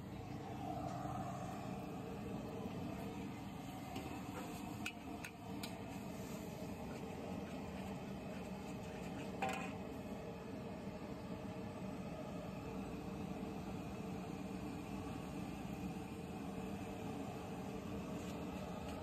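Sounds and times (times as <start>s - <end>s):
burner roaring: 0.0s - 8.9s.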